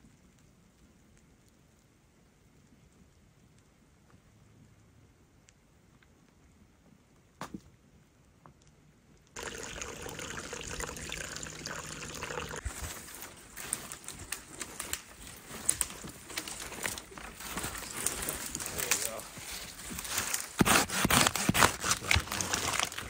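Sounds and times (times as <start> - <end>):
dry wood cracking and snapping: 12.6 - 23.0.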